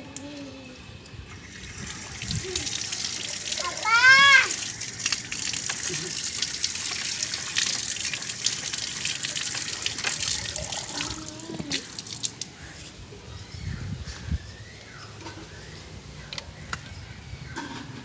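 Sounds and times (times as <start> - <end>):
water splashing onto concrete: 1.3 - 12.7.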